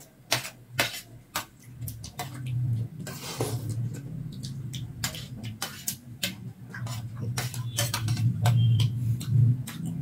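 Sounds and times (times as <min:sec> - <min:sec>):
low steady hum: 0:00.0 - 0:10.0
chewing hard rice: 0:01.4 - 0:10.0
spoons clinking on steel plates: 0:05.0 - 0:09.0.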